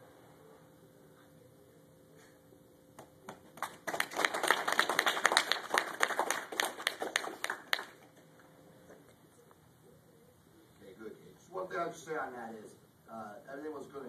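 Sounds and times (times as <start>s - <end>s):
small group clapping: 3.0s - 8.5s.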